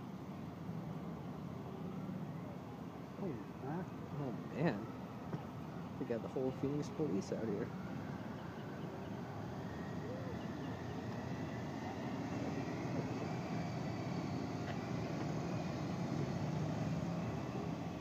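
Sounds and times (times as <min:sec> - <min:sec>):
motorcycles riding past: 0:07.6 - 0:18.0.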